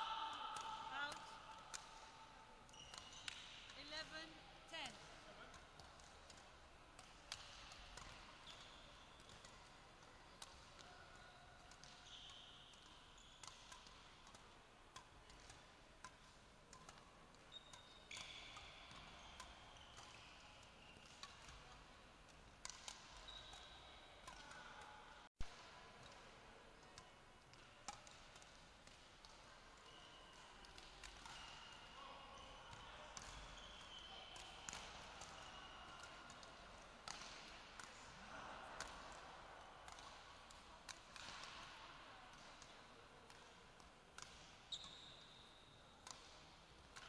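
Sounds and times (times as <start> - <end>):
rackets striking shuttlecock: 0.5 - 2.1, 2.7 - 3.9, 4.8 - 10.9, 11.6 - 24.6, 25.4 - 31.9, 32.7 - 43.6, 46.0 - 47.0
shoes squeaking on court: 2.7 - 3.6, 44.7 - 45.2.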